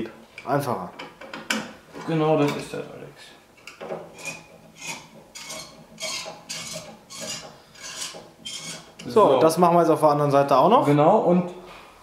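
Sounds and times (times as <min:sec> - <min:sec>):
screwdriver scraping screw: 0:04.1 - 0:09.1.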